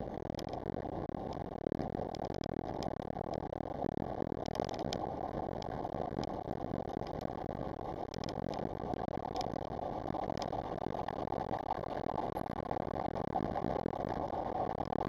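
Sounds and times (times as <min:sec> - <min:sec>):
small clicks and rattles: 0:00.0 - 0:00.6, 0:01.2 - 0:03.6, 0:04.3 - 0:12.7.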